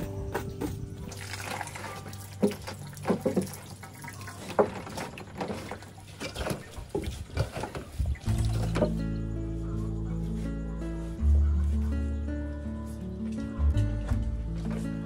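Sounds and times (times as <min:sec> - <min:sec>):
hands squelching wet coconut: 0:01.0 - 0:08.9
water running into metal basin: 0:01.0 - 0:08.9.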